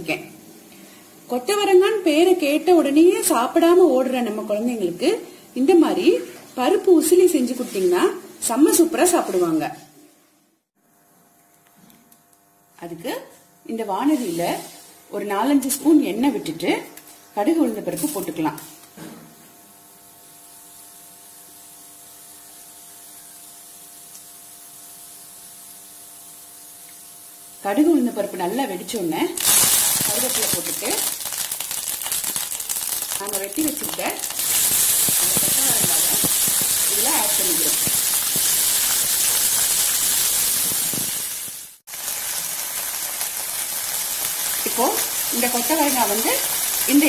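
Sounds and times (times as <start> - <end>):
oil heating in a pan: 13.8 - 47.0.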